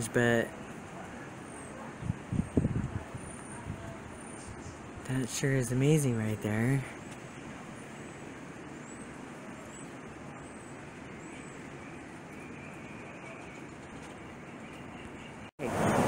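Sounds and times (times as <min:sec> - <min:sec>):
distant road traffic hum: 0:00.0 - 0:16.0
faint high chirps: 0:06.9 - 0:15.5.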